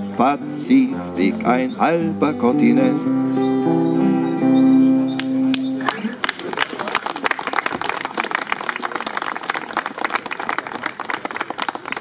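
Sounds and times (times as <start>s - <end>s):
audience applauding: 5.2s - 12.0s.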